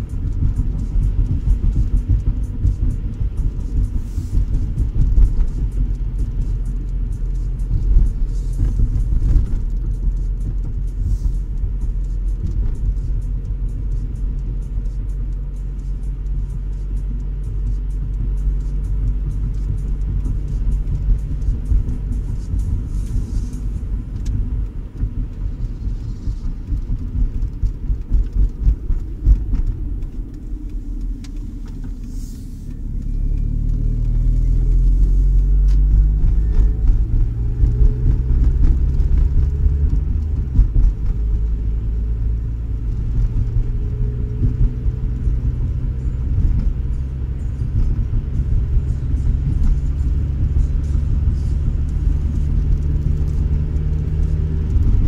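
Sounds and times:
car engine and road rumble: 0.0 - 55.0.

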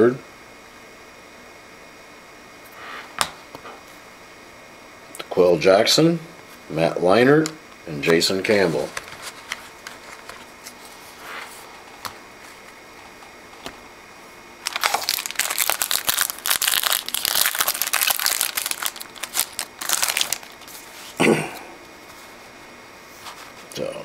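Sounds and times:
foil wrapper crinkling: 14.6 - 21.2.

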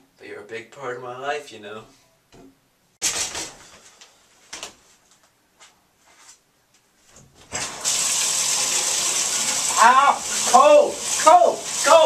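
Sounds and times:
shower curtain sliding on rod: 3.0 - 3.9
shower water hissing: 7.5 - 12.0.

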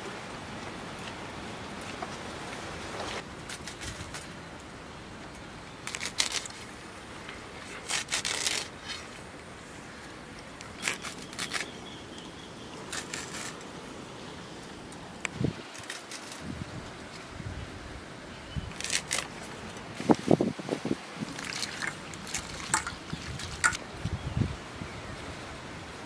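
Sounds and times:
greens sliced on a blade: 7.8 - 9.0.

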